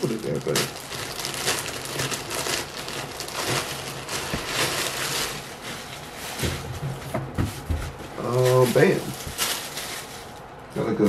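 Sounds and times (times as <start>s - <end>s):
packaging wrap crinkling: 0.0s - 7.1s, 8.1s - 10.8s.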